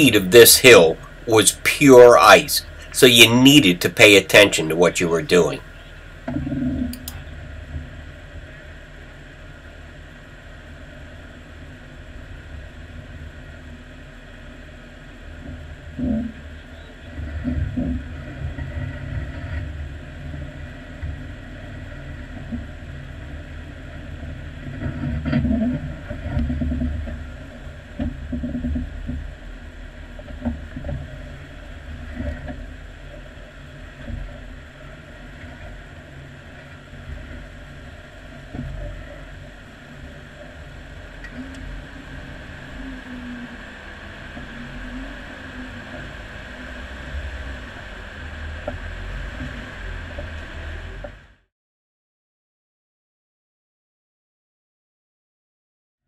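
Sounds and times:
car engine rumbling at low speed: 0.0s - 51.5s.

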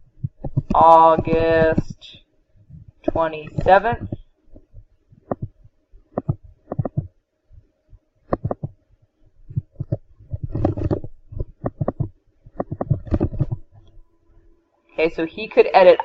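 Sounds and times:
faint steady hum: 0.0s - 16.0s
irregular taps and clicks: 0.2s - 1.8s, 3.0s - 7.2s, 8.2s - 8.8s, 9.5s - 14.0s.

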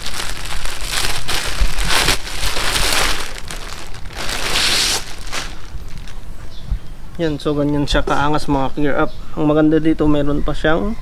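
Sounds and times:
plastic bag crinkling: 0.0s - 6.3s.

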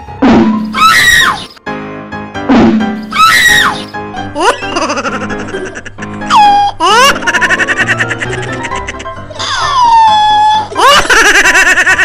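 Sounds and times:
background music: 0.0s - 12.0s
high scream: 0.7s - 1.6s, 3.0s - 3.9s.

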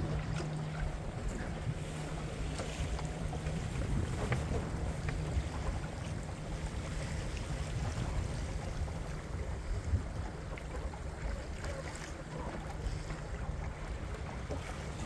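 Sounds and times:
water lapping along boat hull: 0.0s - 15.0s
wind buffeting microphone: 0.0s - 15.0s.

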